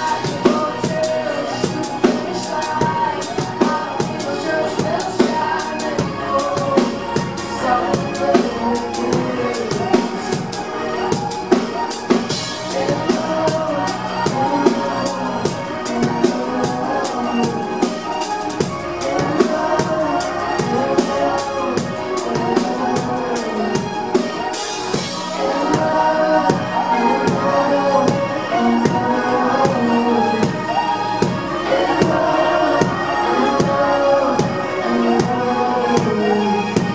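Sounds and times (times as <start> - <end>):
drum beat: 0.0 - 26.7
keyboards: 0.0 - 36.9
woman singing: 0.0 - 36.9.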